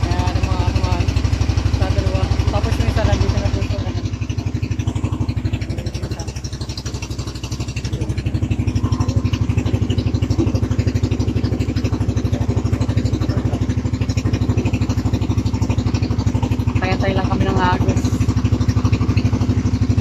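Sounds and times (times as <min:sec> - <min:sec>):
boat engine chugging: 0:00.0 - 0:20.0.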